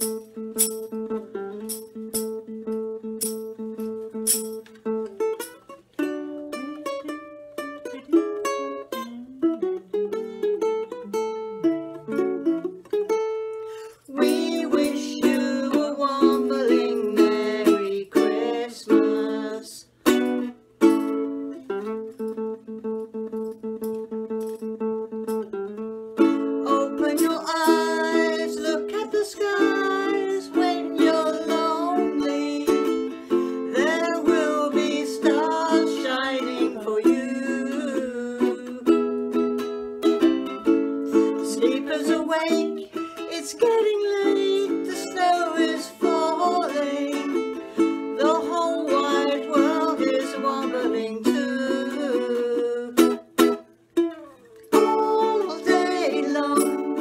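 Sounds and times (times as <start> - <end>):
ukulele strumming chords: 0.0 - 57.0
women singing: 14.1 - 19.9, 26.6 - 39.0, 41.1 - 53.1, 54.8 - 57.0.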